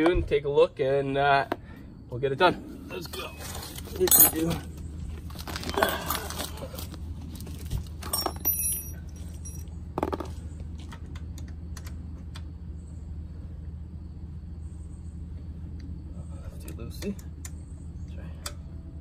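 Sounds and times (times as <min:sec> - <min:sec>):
low hum: 0:00.2 - 0:19.0
metal hand tools clinking: 0:04.0 - 0:04.6, 0:08.0 - 0:09.7.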